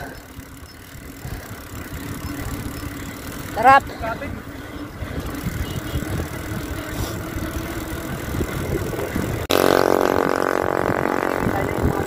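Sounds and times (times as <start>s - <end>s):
bicycle road rumble: 0.0s - 12.0s
steady motor drone: 0.0s - 12.0s
wind on microphone: 5.0s - 12.0s.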